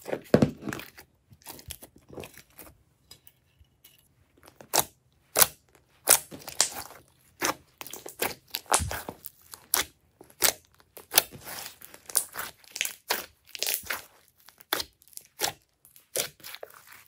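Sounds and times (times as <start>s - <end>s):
slime squishing: 4.3s - 17.0s
slime popping and crackling: 4.6s - 17.0s.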